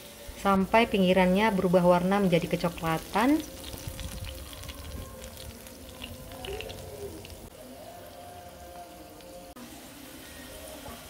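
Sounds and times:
potatoes sizzling in a pan: 0.0 - 7.5.

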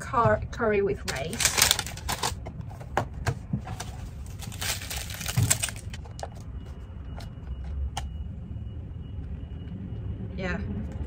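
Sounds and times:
foil container crinkling: 1.0 - 2.4, 3.7 - 6.2.

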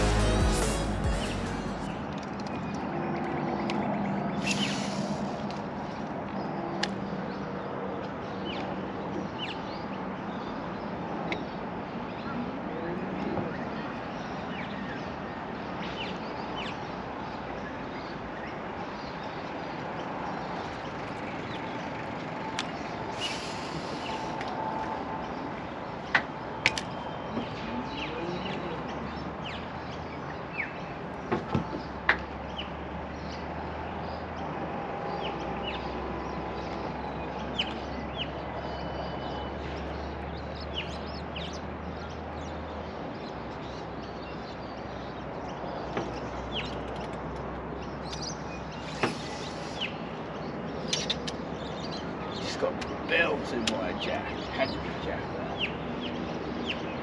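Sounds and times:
bird chirps: 0.0 - 5.3, 43.4 - 57.0
sharp clicks: 46.6 - 47.5.

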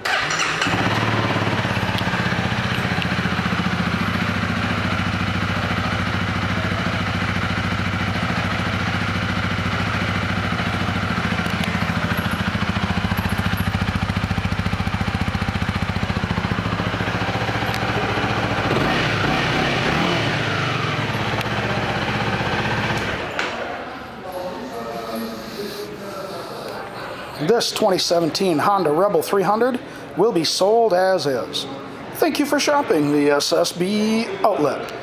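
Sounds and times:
motorcycle engine idling: 0.1 - 23.4.

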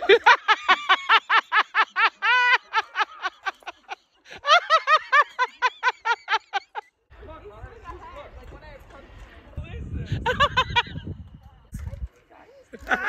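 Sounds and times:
person laughing hard: 0.0 - 6.8.

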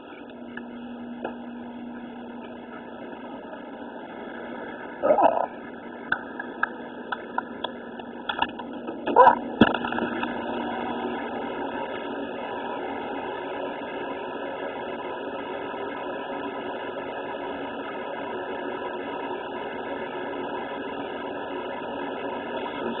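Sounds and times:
appliance fan blowing air: 0.0 - 23.0.

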